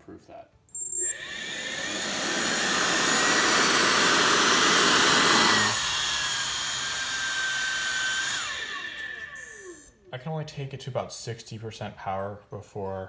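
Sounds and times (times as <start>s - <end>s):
electric fan whine: 0.7s - 10.1s.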